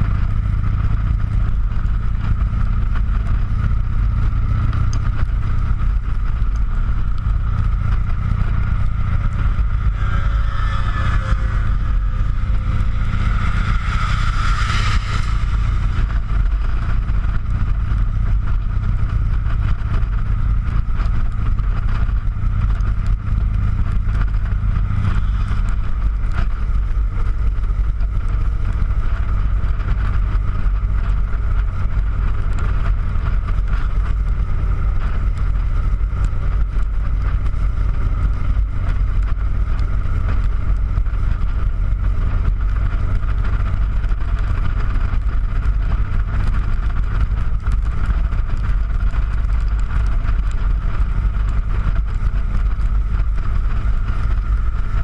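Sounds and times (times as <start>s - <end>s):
motorcycle engine rumble: 0.0s - 55.0s
wind rush: 0.0s - 55.0s
loud rushing sound: 5.4s - 20.4s.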